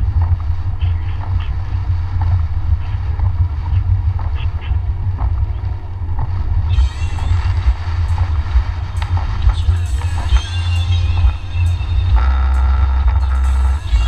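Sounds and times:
road and engine rumble: 0.0s - 14.0s
bright hiss: 6.7s - 14.0s.

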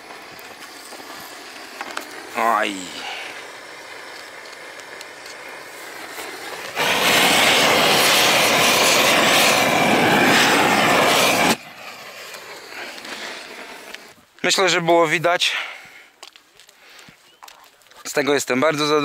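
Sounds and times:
gas torch rushing: 0.0s - 14.2s.

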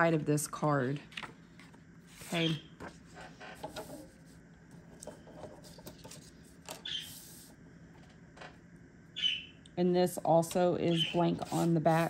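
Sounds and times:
paper card scraping: 1.1s - 4.4s
paper rustling: 1.1s - 4.4s.

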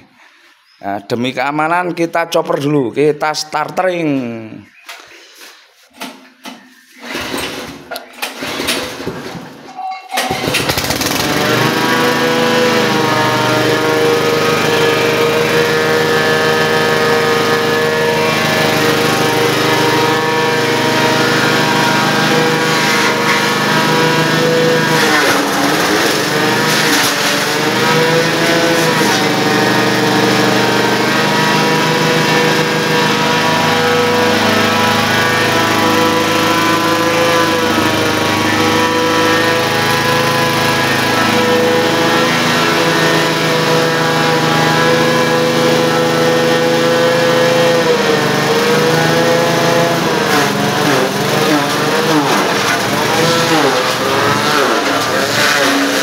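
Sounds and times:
chopper cutting grass stalks: 10.2s - 56.0s
small gasoline engine running: 10.2s - 56.0s.

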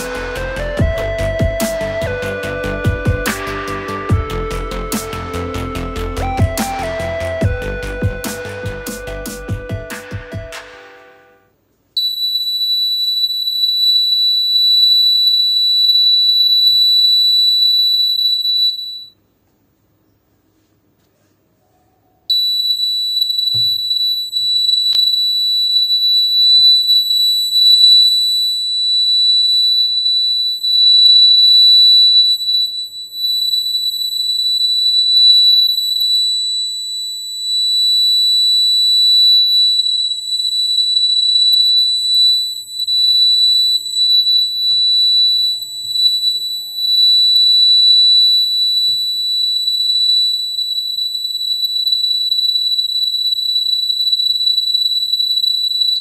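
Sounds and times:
high-pitched alarm buzzer tone: 12.0s - 19.2s, 22.3s - 56.0s.

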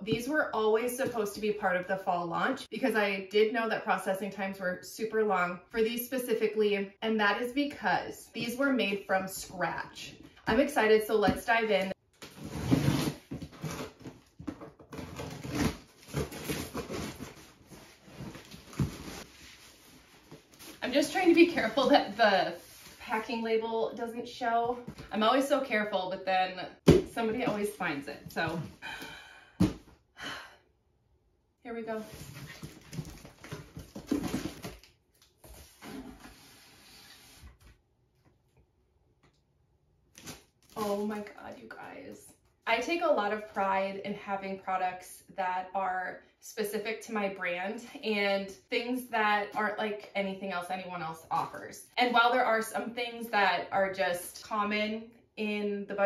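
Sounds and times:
packaging rustling and scraping: 12.2s - 21.8s, 31.9s - 37.6s.

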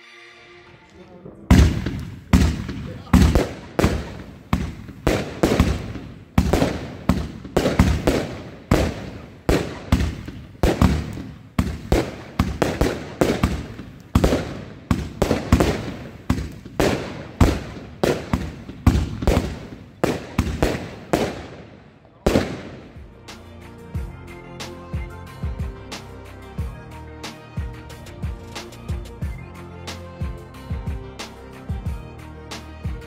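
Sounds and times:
fireworks bangs with crackling: 1.5s - 23.1s.

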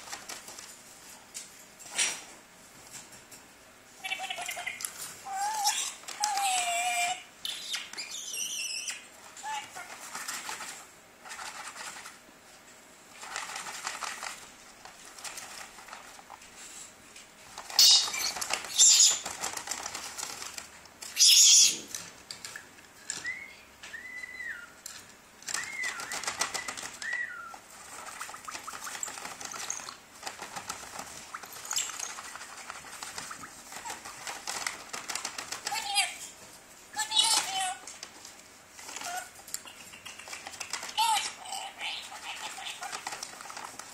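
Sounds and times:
bird whistling: 7.4s - 9.1s, 23.2s - 24.8s, 25.5s - 27.6s
harsh bird squawks: 17.8s - 19.2s, 21.2s - 21.8s.

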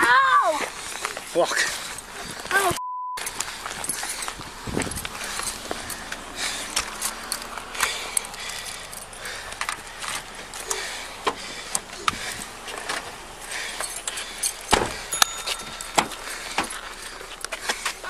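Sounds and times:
car door opening: 14.7s - 16.8s.

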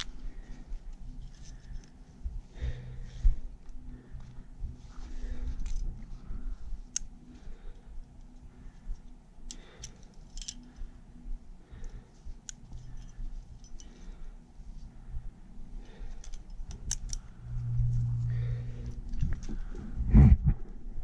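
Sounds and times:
low rumble of handling: 0.0s - 21.0s
carabiners clinking: 8.1s - 11.0s, 12.4s - 14.1s.

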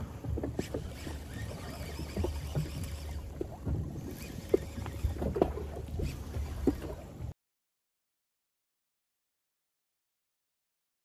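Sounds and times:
wind rumble on microphone: 0.0s - 7.3s
water lapping against boat hull: 0.0s - 7.4s.

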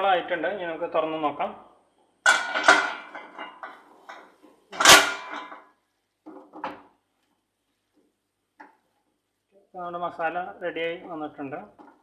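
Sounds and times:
loud metal clang: 2.3s - 3.8s, 4.8s - 5.6s
steel pan lid clattering: 2.3s - 5.6s.

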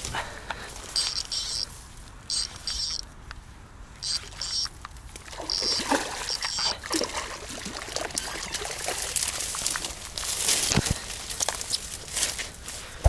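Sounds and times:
water splashing and dribbling: 4.0s - 12.0s.

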